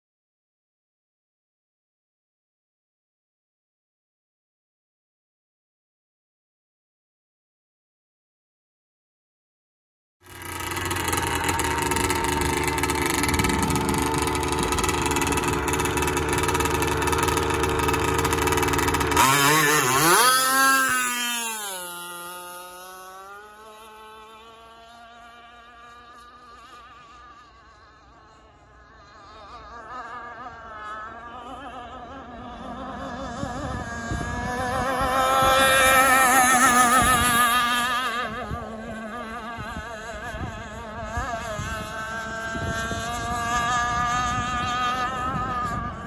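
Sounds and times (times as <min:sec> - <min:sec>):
model boat motor running: 0:10.2 - 0:46.0.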